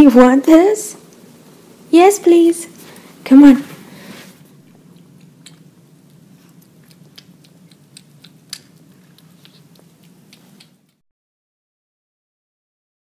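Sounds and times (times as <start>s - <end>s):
low steady hum: 0.0s - 11.0s
cat chewing food: 3.9s - 11.0s.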